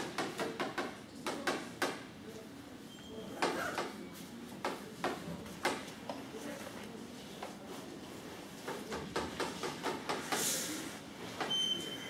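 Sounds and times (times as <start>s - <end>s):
chalk tapping and scratching: 7.3s - 10.7s.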